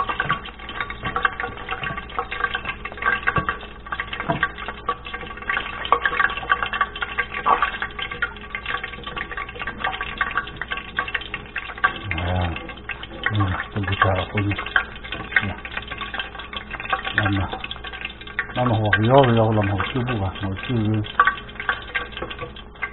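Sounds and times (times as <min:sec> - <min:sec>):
oil sizzling and popping: 0:00.0 - 0:22.9.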